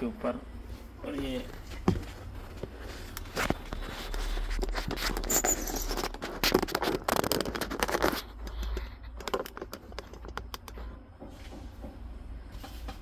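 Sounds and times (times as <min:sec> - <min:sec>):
scraping and rustling: 0:00.7 - 0:11.7.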